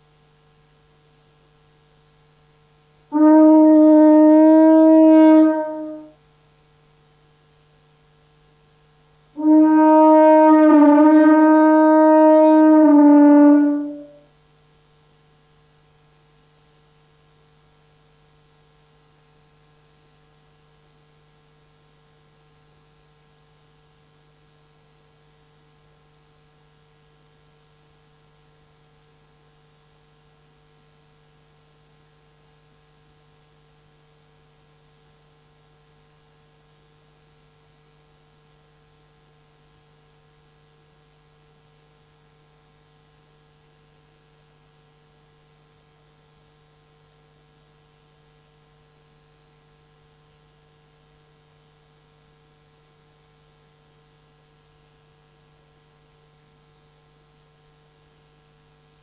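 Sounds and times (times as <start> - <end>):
faint electrical hum: 0.0 - 59.0
low hiss: 3.1 - 6.2, 9.3 - 14.3.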